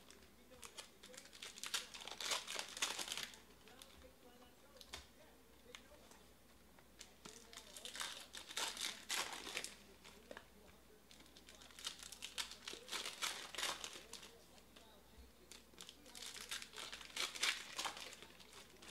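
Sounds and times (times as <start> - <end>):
foil wrapper crinkling and tearing: 0.0 - 3.9, 7.0 - 10.4, 11.1 - 14.4, 15.5 - 18.9.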